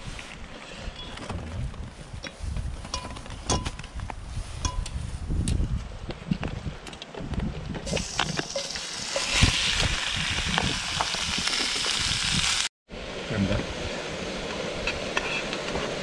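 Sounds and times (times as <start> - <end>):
meat sizzling in a pan: 7.9 - 12.7.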